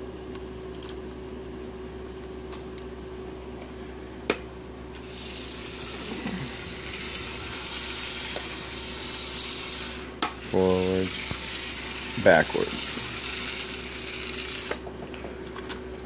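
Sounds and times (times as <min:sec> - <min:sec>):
toy train rattling on plastic track: 0:10.9 - 0:14.8.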